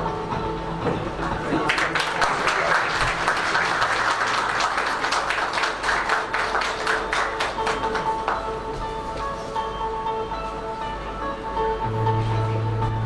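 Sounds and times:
background music: 0.0s - 13.0s
audience applauding: 1.2s - 8.7s.

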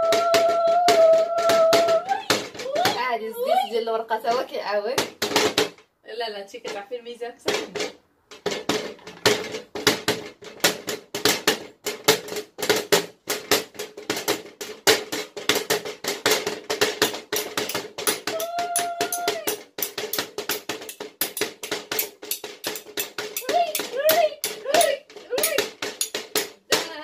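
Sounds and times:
metal spoons tapping on metal tray: 17.3s - 26.5s.

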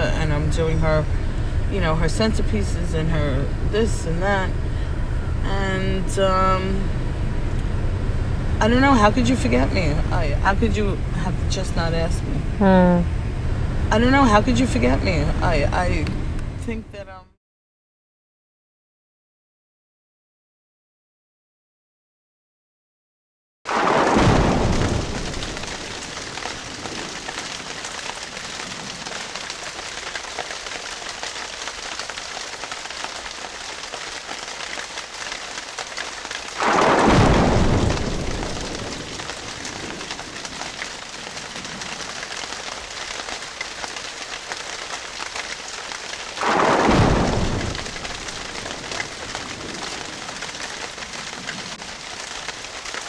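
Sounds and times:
waves crashing: 36.6s - 39.9s, 46.4s - 49.7s.

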